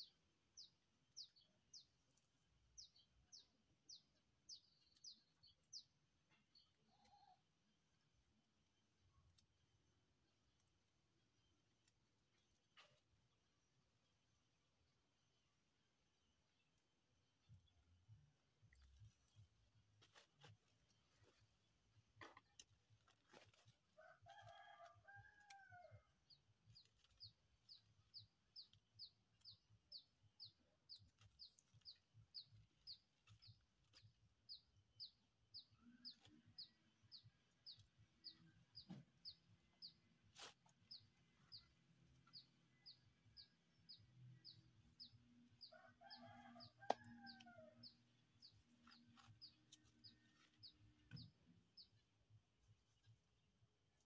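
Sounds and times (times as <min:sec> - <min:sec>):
faint rooster crowing: 0:23.9 - 0:26.2, 0:45.6 - 0:48.0.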